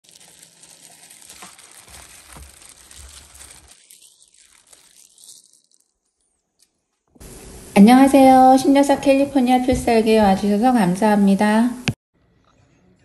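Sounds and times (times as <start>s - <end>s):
wet radish pieces squishing: 0.0s - 6.8s
plastic glove crinkling: 0.0s - 7.1s.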